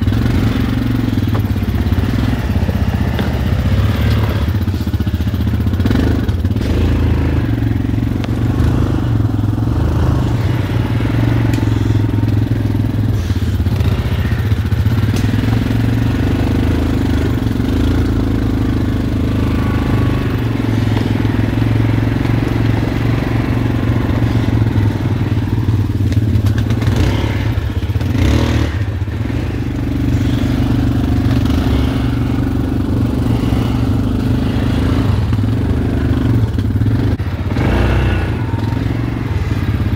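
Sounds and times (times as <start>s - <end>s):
atv engine running at low revs: 0.0s - 39.9s.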